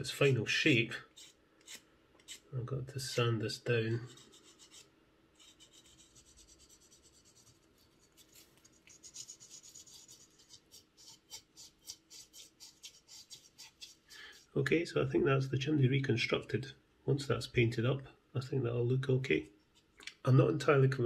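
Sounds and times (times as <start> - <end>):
sandpaper rasping: 5.4 - 14.4.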